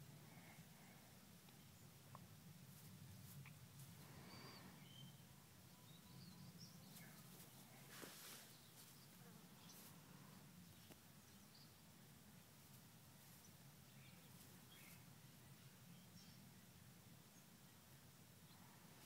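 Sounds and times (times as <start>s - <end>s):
faint low hum: 0.0s - 19.0s
soft rustle: 1.4s - 5.2s, 6.6s - 11.5s, 12.1s - 15.9s.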